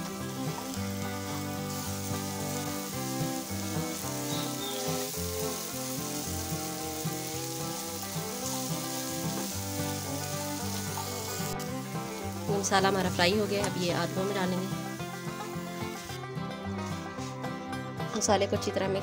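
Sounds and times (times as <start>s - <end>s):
onion sizzling in hot oil: 0.0s - 16.2s
background music: 0.0s - 19.0s
spatula stirring in pan: 1.4s - 13.0s.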